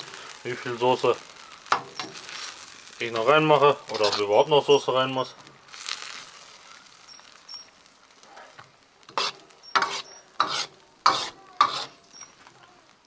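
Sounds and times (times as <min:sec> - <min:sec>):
faint sizzle of sauce: 0:00.0 - 0:13.0
metal ladle scraping wok: 0:09.1 - 0:12.0.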